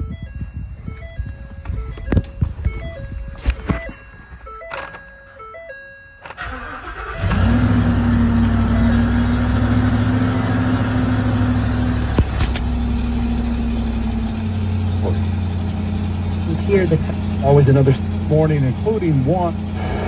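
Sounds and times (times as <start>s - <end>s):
warning chimes: 0.0s - 7.4s, 8.4s - 11.9s
engine idling: 6.3s - 20.0s.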